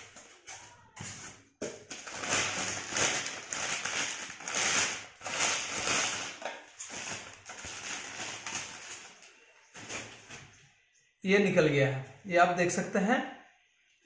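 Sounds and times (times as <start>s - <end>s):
plastic bag crinkling: 0.0s - 10.5s.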